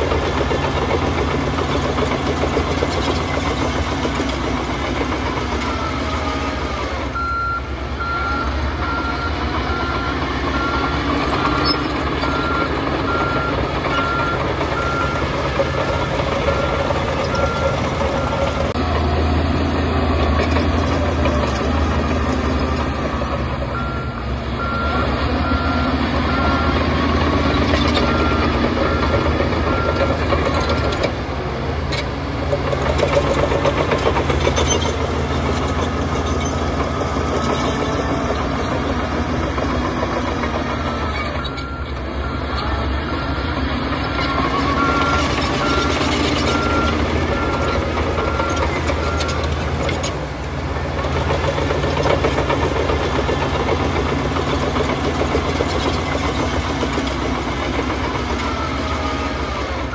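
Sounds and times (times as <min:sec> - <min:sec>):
diesel engines running: 0:00.0 - 0:59.9
reversing alarm beeping: 0:07.2 - 0:18.7, 0:23.7 - 0:31.0, 0:39.6 - 0:49.6.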